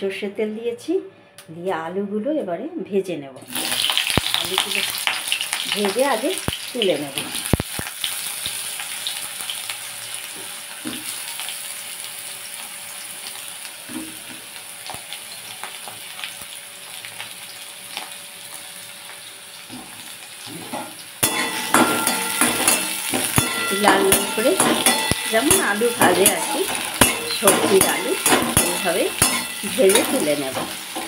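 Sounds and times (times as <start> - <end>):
potatoes sizzling in oil: 3.5 - 31.0
metal spatula scraping a pan: 20.6 - 31.0.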